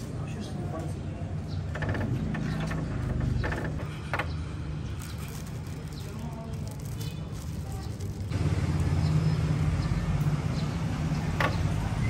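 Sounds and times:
plastic packaging crackling: 4.9 - 8.4
vehicle engine running: 8.2 - 12.0.

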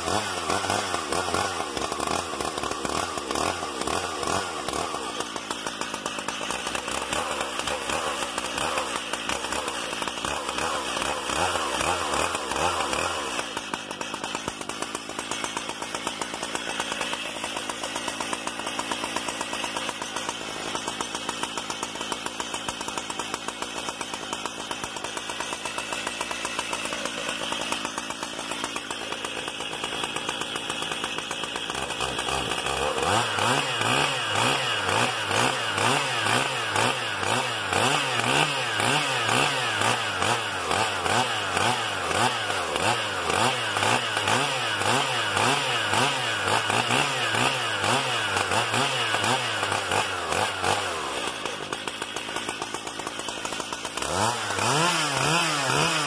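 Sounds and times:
chainsaw revving and idling: 0.0 - 56.0.

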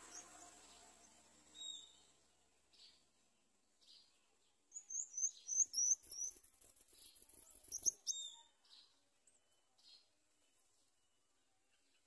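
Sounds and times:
nestling birds chirping: 3.8 - 11.0.

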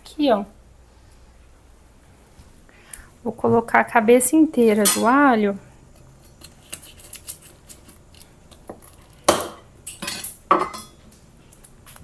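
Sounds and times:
utensils and dishes clinking: 4.7 - 5.2, 9.4 - 11.0.

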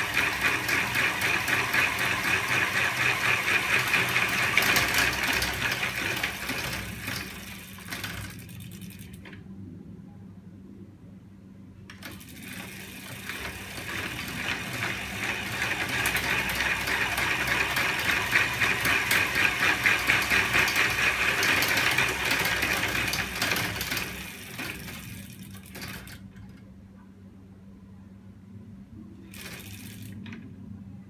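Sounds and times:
chain and sprockets rattling: 0.0 - 9.3, 12.0 - 26.2.

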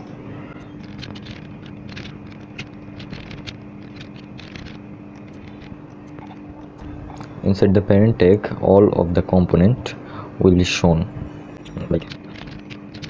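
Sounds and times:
low electrical hum: 0.0 - 13.0.

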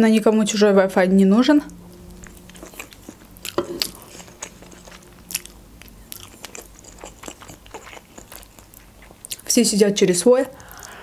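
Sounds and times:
chewing with mouth clicks: 1.6 - 9.5, 10.6 - 11.0.

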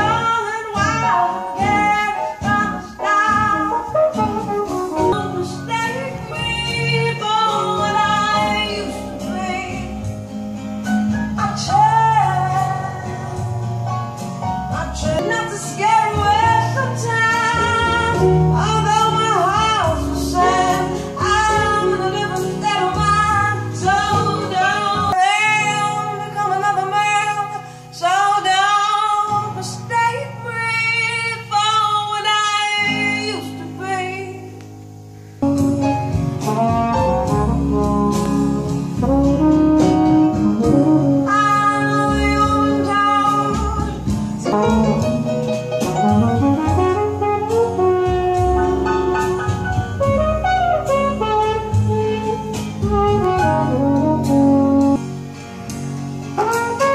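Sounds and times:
song over speakers: 35.4 - 56.9.

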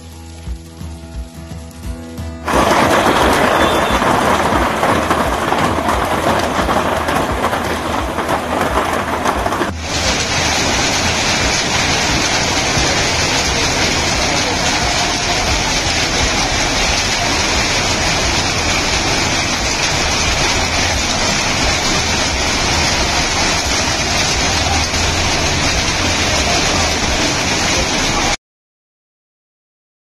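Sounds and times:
hail and rain pelting street: 0.0 - 28.4.

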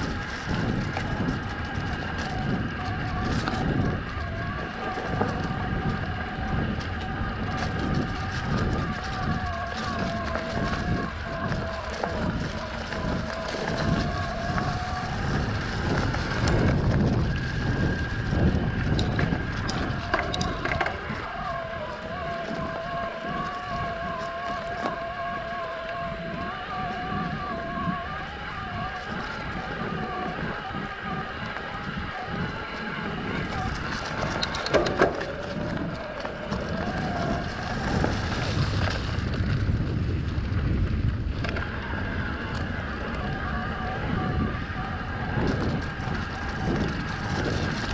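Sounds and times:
electric bike motor whining: 0.0 - 47.9
tyre rumble on dirt trail: 0.0 - 47.9
wind on microphone: 0.0 - 47.9.

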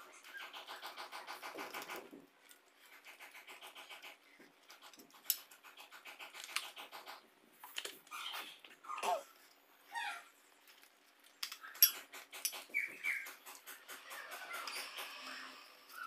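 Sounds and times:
dog panting: 0.1 - 2.2, 2.8 - 7.2.

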